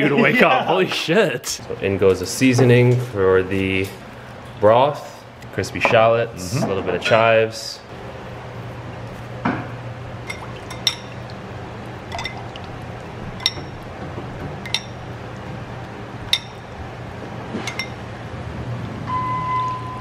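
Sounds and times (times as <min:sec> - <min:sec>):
metal spoon clinking on ceramic bowl: 0:10.3 - 0:11.2, 0:13.4 - 0:13.8, 0:14.6 - 0:15.0, 0:16.3 - 0:16.6.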